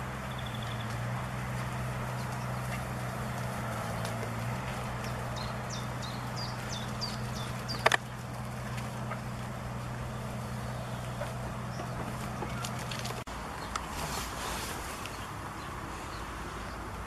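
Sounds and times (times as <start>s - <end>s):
distant motor humming: 0.0s - 13.3s.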